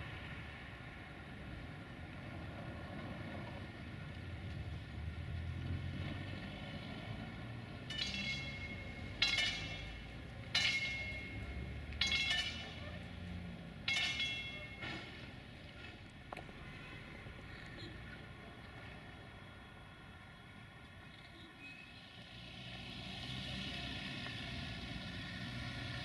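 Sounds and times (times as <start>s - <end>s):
level crossing bell ringing: 7.9s - 12.8s.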